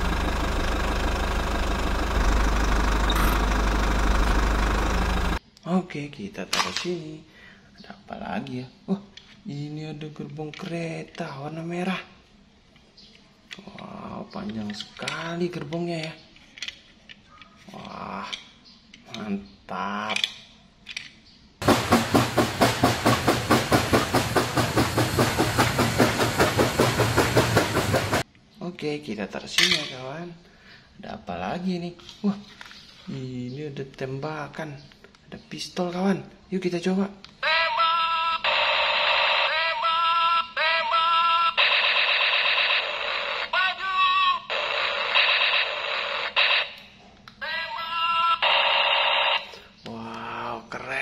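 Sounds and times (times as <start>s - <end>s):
steam locomotive chuffing: 21.6s - 28.2s
toy pistol electronic zaps: 38.4s - 39.7s, 41.6s - 43.6s, 44.5s - 47.0s, 48.4s - 49.6s.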